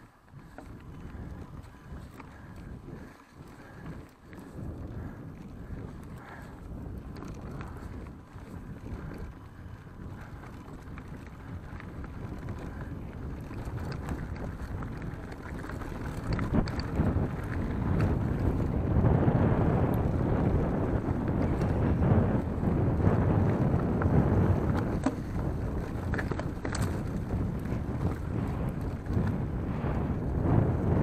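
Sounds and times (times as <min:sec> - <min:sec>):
bike clicks and rattles: 0:00.0 - 0:31.0
bike tyres rolling on dirt: 0:00.0 - 0:31.0
wind noise on microphone: 0:00.0 - 0:31.0.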